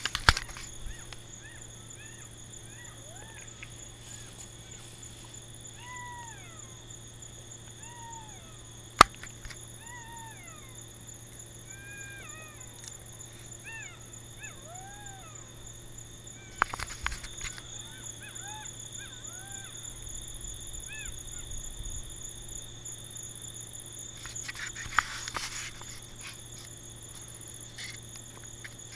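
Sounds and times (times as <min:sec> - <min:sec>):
clicks and rustles: 0:00.0 - 0:01.3, 0:09.0 - 0:09.6, 0:16.5 - 0:17.8, 0:24.2 - 0:28.9
jackals howling in chorus: 0:00.8 - 0:07.0, 0:09.7 - 0:10.9, 0:11.6 - 0:20.1, 0:20.8 - 0:21.6.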